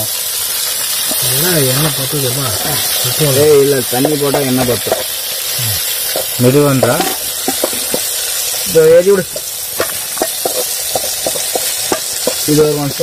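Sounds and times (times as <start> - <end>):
vegetables sizzling in a pot: 0.0 - 13.0
man speaking: 1.2 - 4.9, 5.6 - 5.8, 6.4 - 7.2, 8.6 - 9.4, 12.4 - 13.0
ladle scraping a pot: 6.1 - 8.4, 9.3 - 12.5.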